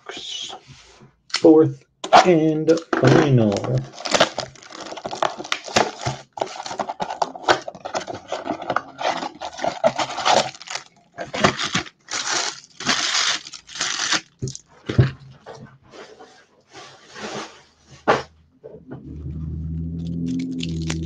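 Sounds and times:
plastic wrap crinkling: 3.4s - 14.8s, 19.7s - 21.0s
cardboard box rustling: 3.6s - 14.3s.

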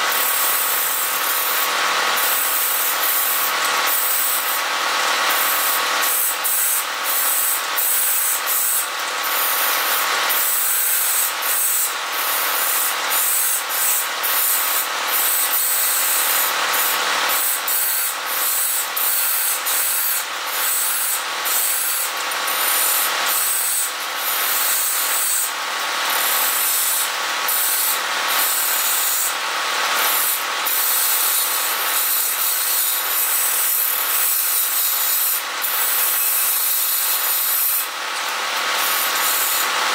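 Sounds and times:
lathe running: 0.1s - 12.7s.

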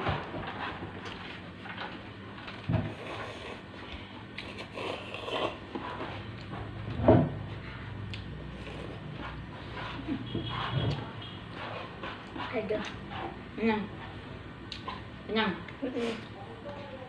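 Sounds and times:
chewing and slurping noodles: 4.4s - 6.5s.

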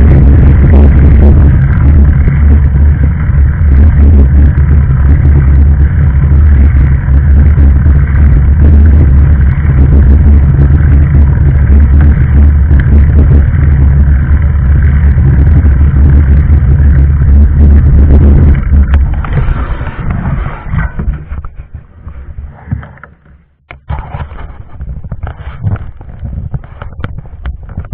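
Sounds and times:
bicycle rattling over gravel: 0.0s - 27.9s
sharp clicks and knocks: 18.4s - 27.9s.

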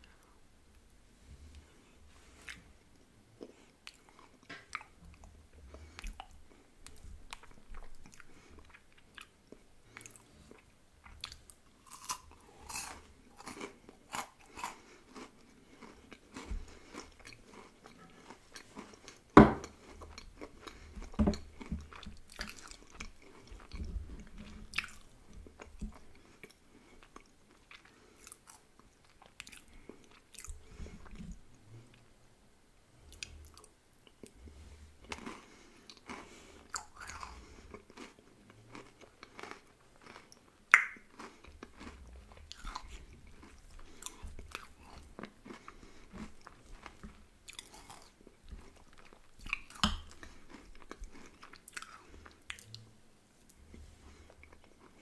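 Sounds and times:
chewing and crunching wafer: 3.4s - 31.3s, 35.0s - 52.9s
wet mouth sounds: 40.7s - 41.9s.

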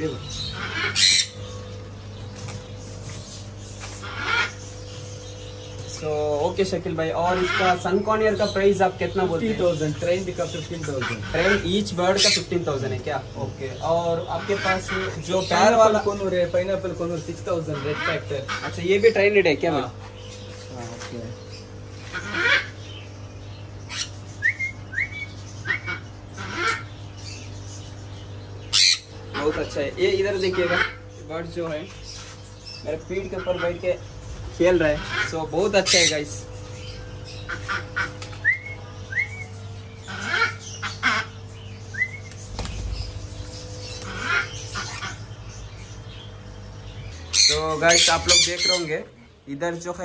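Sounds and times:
parrots squawking: 0.0s - 50.0s
steady low hum: 0.0s - 50.0s
parrot chirps: 0.2s - 1.6s, 23.8s - 27.0s, 28.7s - 29.2s
parrot harsh squawks: 0.3s - 1.4s, 4.0s - 4.6s, 10.9s - 12.5s, 17.7s - 18.8s, 22.0s - 22.8s, 23.9s - 24.2s, 24.9s - 27.0s, 28.7s - 29.7s, 30.4s - 31.0s, 35.0s - 36.3s, 37.4s - 42.1s, 43.8s - 45.3s, 47.3s - 49.0s.

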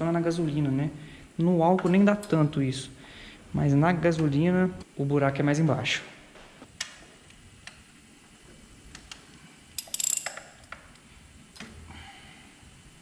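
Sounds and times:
ratchet wrench clicking: 9.8s - 10.8s.

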